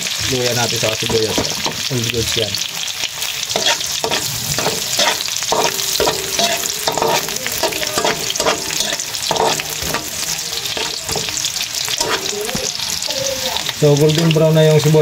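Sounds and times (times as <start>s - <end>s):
food sizzling in hot oil: 0.0s - 15.0s
spatula scraping a wok: 3.2s - 13.1s.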